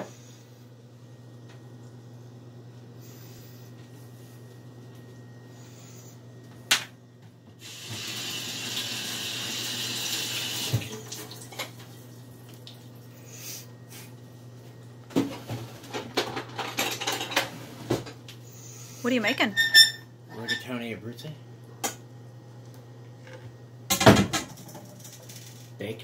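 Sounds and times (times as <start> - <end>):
kitchen tap running: 7.6 - 13.0.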